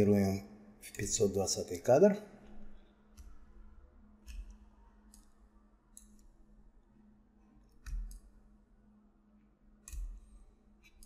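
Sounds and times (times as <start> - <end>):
faint steady hum: 0.0 - 11.0
computer mouse clicking: 2.4 - 3.6, 4.2 - 6.4, 7.6 - 8.4, 9.8 - 11.0.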